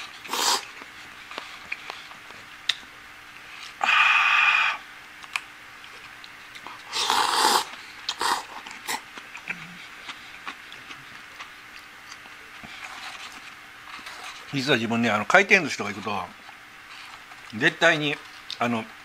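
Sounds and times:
noodles slurped: 0:00.2 - 0:00.7, 0:06.8 - 0:09.8.

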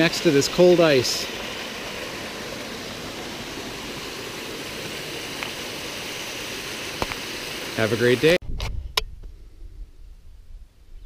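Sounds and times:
stream rushing over rocks: 0:00.0 - 0:08.4.

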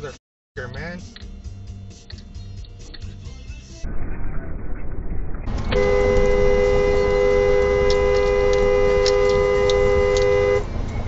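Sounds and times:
car horn honking: 0:05.6 - 0:10.8.

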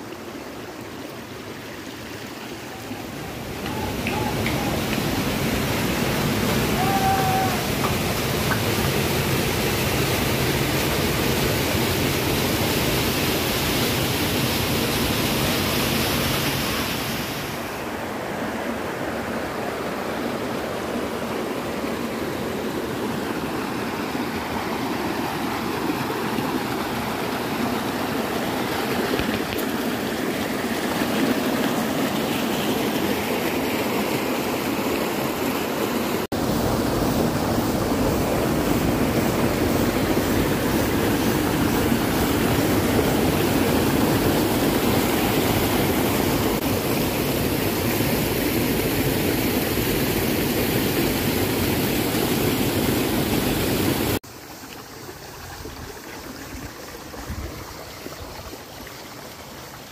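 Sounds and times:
stream flowing between boulders: 0:00.0 - 0:59.9
water rushing down waterfall: 0:00.0 - 0:59.9.

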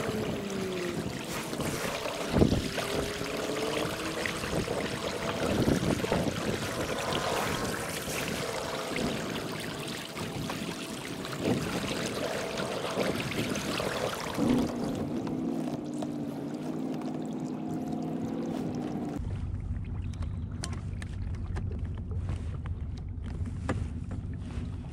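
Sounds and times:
water splashing along kayak hull: 0:00.0 - 0:24.9
low rumble: 0:17.4 - 0:24.9.

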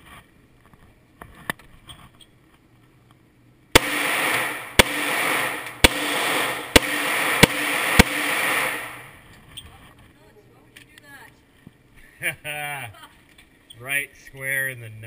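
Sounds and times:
handgun shots echoing indoors: 0:03.8 - 0:09.0.

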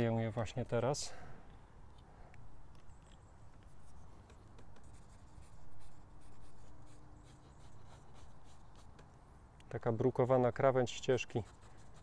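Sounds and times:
drawing tool scratching on paper: 0:03.8 - 0:09.0, 0:11.3 - 0:12.0.

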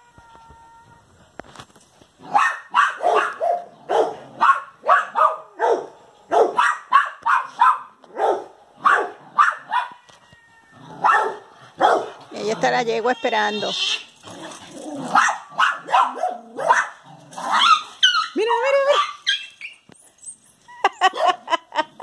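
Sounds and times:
small dog barking: 0:02.2 - 0:10.1, 0:11.0 - 0:12.2, 0:15.0 - 0:19.4.

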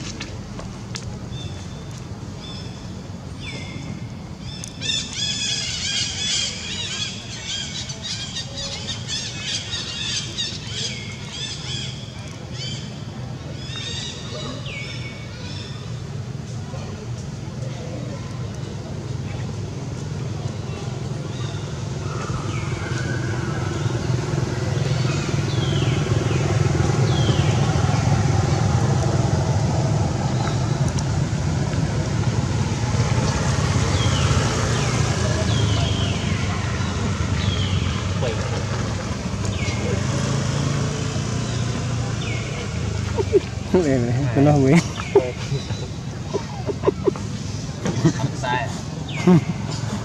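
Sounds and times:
birds chirping and squawking: 0:44.8 - 0:47.6.

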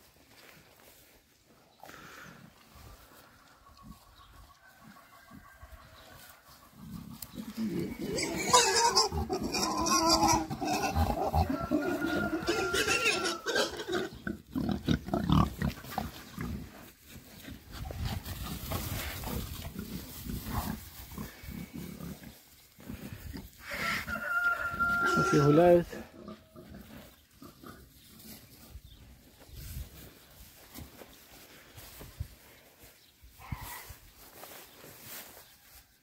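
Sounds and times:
boars grunting and squealing: 0:06.7 - 0:24.1, 0:24.8 - 0:28.8.

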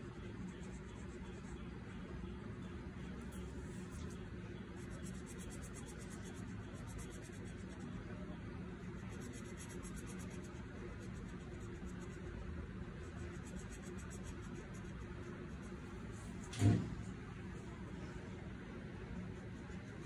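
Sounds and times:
marker scribbling on paper: 0:00.0 - 0:01.8, 0:03.2 - 0:08.0, 0:09.0 - 0:16.4
steady low hum: 0:00.0 - 0:20.0.

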